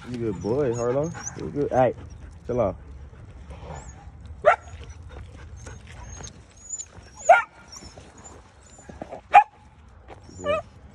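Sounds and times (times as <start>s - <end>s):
puppy yelping: 0.2s - 1.5s, 5.6s - 9.5s, 10.2s - 10.7s.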